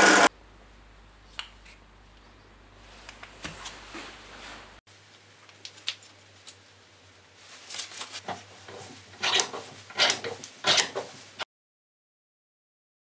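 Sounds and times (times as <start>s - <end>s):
scraping strokes: 7.6s - 11.4s.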